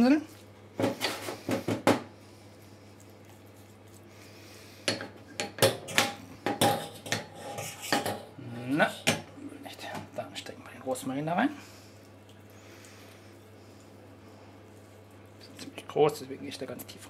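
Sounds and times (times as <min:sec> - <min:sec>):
brush scraping in ceramic dish: 0:06.8 - 0:09.1.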